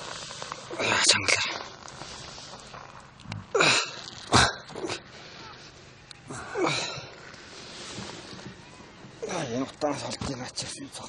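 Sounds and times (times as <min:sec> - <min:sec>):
men grunting: 0:06.3 - 0:07.1.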